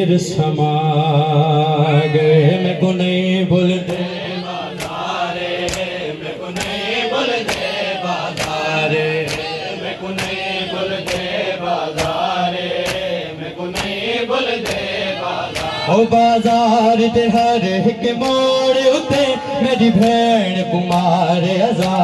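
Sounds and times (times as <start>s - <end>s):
men chanting together: 0.8s - 22.0s
hands slapping chests: 3.9s - 14.9s, 15.5s - 15.8s, 21.8s - 22.0s.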